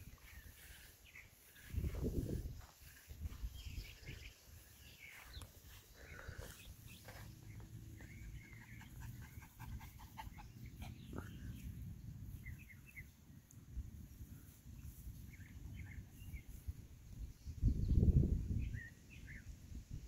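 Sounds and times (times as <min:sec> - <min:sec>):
low outdoor rumble: 0:05.7 - 0:14.6.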